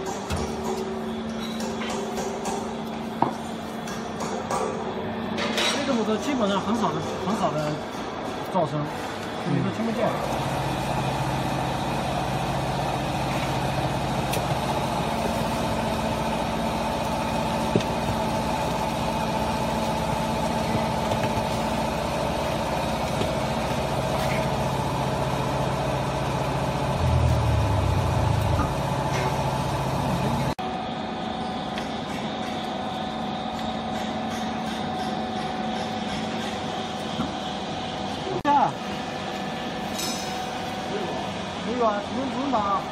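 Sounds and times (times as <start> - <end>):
hydraulic baler motor humming: 10.2 - 30.6.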